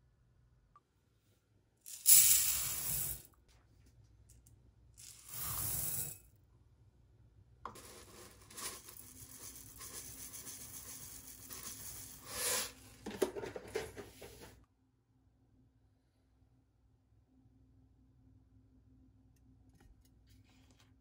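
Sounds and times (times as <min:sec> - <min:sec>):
rice grains poured into pot: 0:01.9 - 0:03.2, 0:05.0 - 0:06.2, 0:07.7 - 0:13.1.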